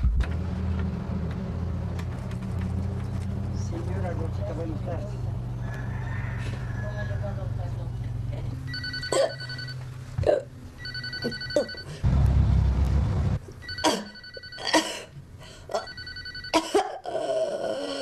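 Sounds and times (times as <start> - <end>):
electronic telephone ringing: 8.7 - 9.8, 10.8 - 12.0, 13.6 - 14.7, 15.8 - 16.6
loud low rumbling noise: 12.0 - 13.4.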